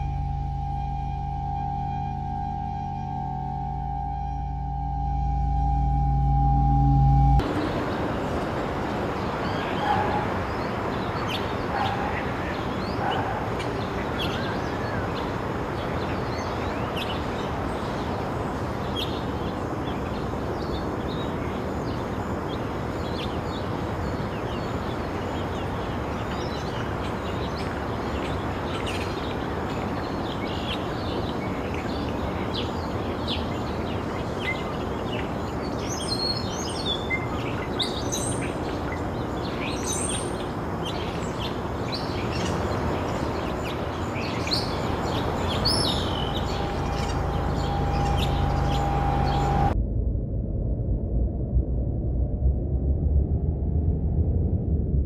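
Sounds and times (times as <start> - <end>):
steady background rush: 0.0 - 49.8
small birds chirping: 7.4 - 49.8.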